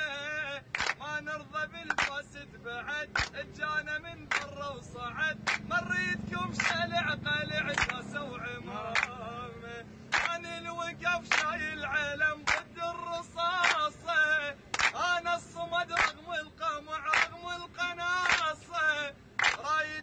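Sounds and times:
men singing in unison: 0:00.0 - 0:20.0
hands clapping in time: 0:00.8 - 0:01.0, 0:01.9 - 0:02.2, 0:03.2 - 0:03.4, 0:04.3 - 0:04.6, 0:05.4 - 0:05.7, 0:06.6 - 0:06.8, 0:07.7 - 0:08.1, 0:09.0 - 0:09.2, 0:10.1 - 0:10.4, 0:11.3 - 0:11.6, 0:12.5 - 0:12.7, 0:13.6 - 0:13.9, 0:14.7 - 0:15.0, 0:16.0 - 0:16.2, 0:17.1 - 0:17.4, 0:18.2 - 0:18.6, 0:19.4 - 0:19.7.

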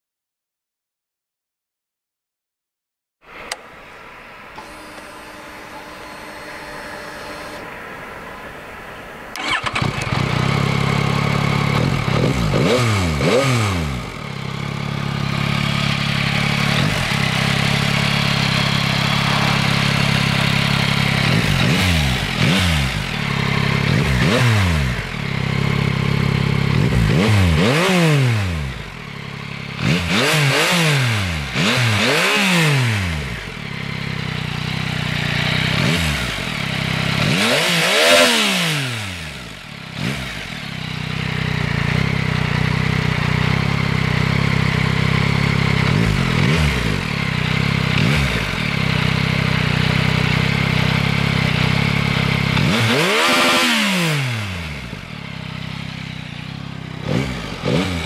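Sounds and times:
motorcycle engine idling and revving: 0:04.6 - 0:07.8, 0:09.3 - 0:58.0.

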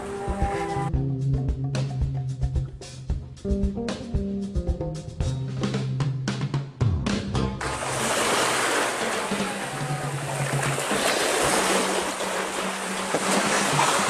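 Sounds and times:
small waves washing onto beach: 0:07.6 - 0:14.0.

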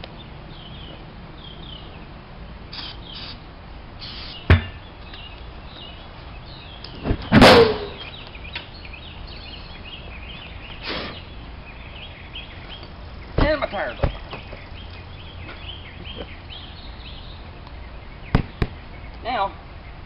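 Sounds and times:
birds chirping: 0:00.0 - 0:20.0
spray can hissing: 0:02.7 - 0:03.4, 0:04.0 - 0:04.4.

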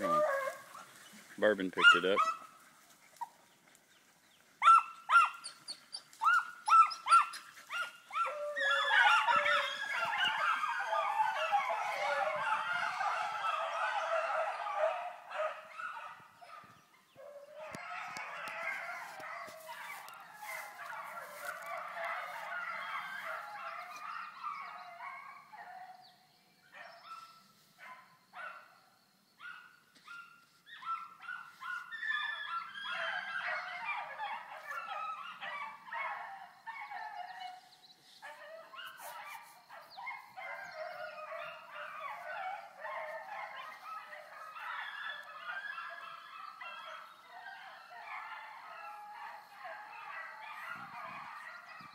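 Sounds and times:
hounds baying: 0:00.0 - 0:26.0, 0:29.4 - 0:51.9.

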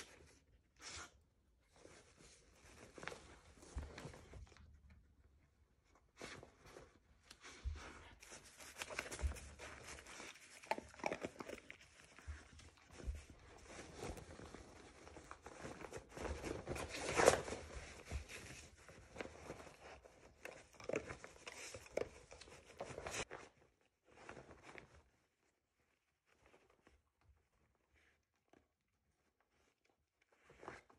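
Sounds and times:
dog rummaging in fabric mat: 0:01.7 - 0:04.8, 0:05.9 - 0:27.0
cloth rustling: 0:05.4 - 0:28.0.

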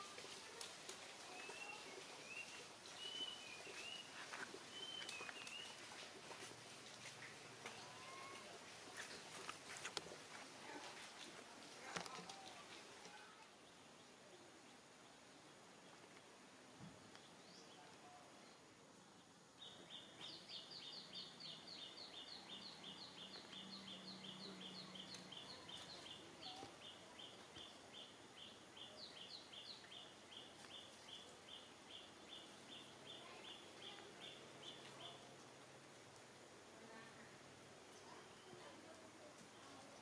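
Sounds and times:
bird chirping: 0:01.3 - 0:05.8, 0:19.6 - 0:35.3.

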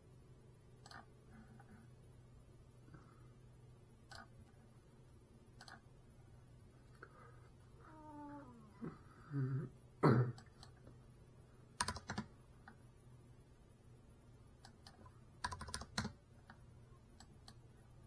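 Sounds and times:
steady low hum: 0:00.0 - 0:18.0
faint clicks: 0:10.4 - 0:11.0, 0:14.6 - 0:17.6.

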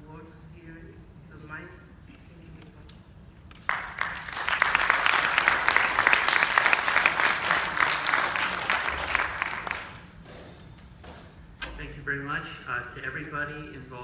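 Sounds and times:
audience applauding: 0:03.6 - 0:10.1.

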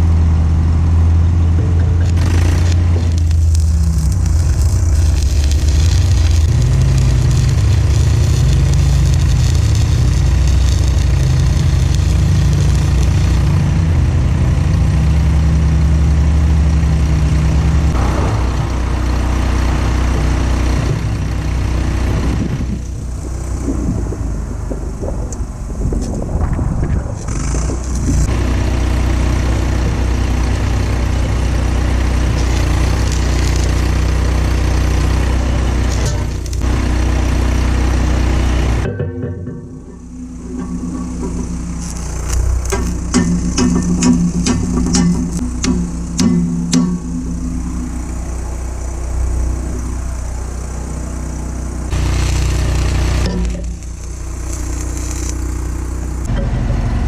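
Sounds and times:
engine idling: 0:00.0 - 0:57.0
welder hum: 0:00.0 - 0:57.0
welding crackle: 0:00.6 - 0:39.0, 0:39.6 - 0:56.3
rush of noise: 0:17.8 - 0:28.3.

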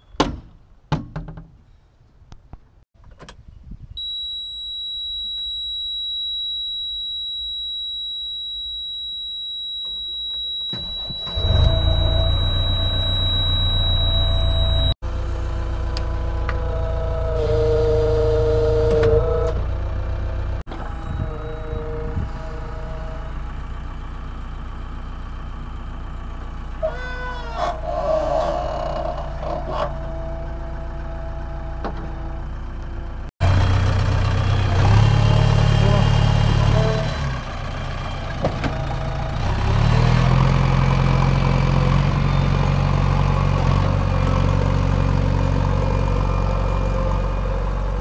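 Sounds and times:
high-pitched warning beep: 0:04.0 - 0:15.0
high whine: 0:04.0 - 0:16.0
diesel engine running: 0:10.6 - 0:27.2, 0:27.8 - 0:48.0.

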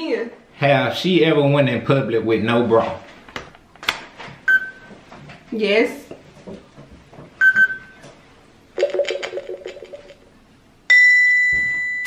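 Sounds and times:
loud steady high beep: 0:10.9 - 0:12.0
short electronic beep: 0:10.9 - 0:12.0.

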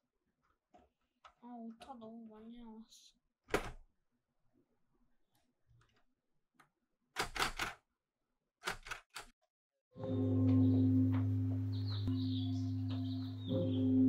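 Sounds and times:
manual typewriter clacking: 0:07.2 - 0:07.8, 0:08.6 - 0:09.3.

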